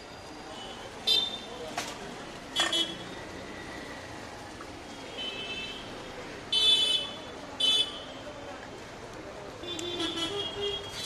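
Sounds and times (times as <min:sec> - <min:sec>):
street traffic: 0:00.0 - 0:11.0
vehicle horns tooting: 0:09.7 - 0:11.0.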